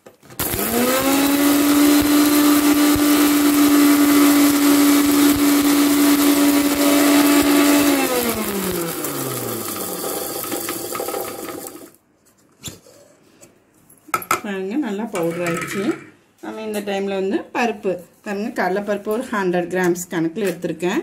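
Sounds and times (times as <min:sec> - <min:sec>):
mixer grinder motor grinding: 0:00.2 - 0:12.0.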